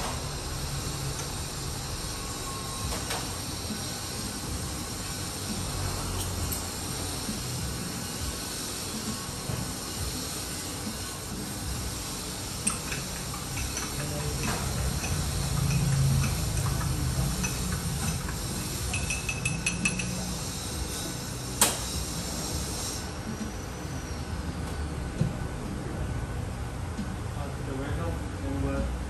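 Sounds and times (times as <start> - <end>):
cups and tools clinking: 6.0 - 6.9, 12.5 - 21.8.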